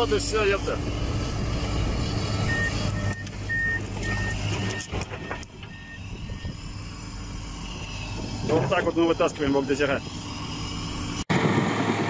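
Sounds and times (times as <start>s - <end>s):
diesel engine running: 0.0s - 12.0s
reversing alarm beeping: 2.4s - 6.7s.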